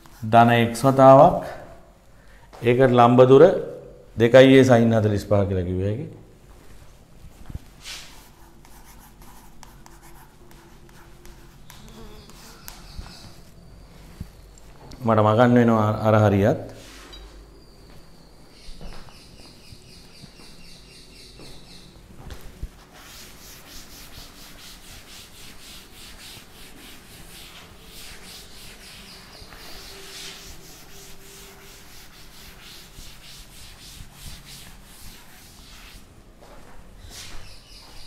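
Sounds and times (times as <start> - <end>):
eraser rubbing on chalkboard: 7.8 - 13.5, 22.8 - 36.0.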